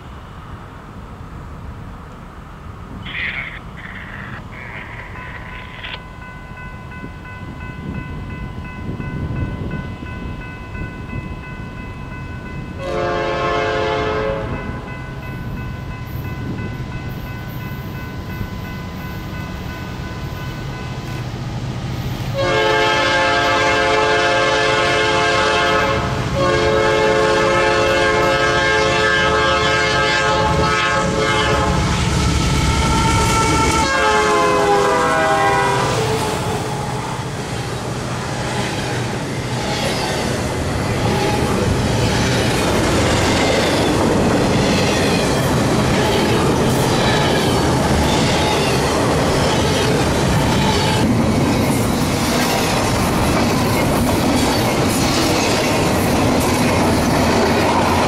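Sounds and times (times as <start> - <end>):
train cars rolling past: 0.0 - 58.0
train engine rumble: 0.0 - 58.0
locomotive chime horn: 5.1 - 21.2, 22.4 - 32.0, 32.7 - 36.8.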